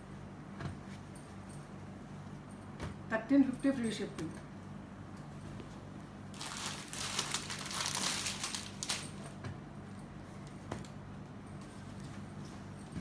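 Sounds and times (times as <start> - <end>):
fabric and plastic wrapping rustling: 6.3 - 9.4.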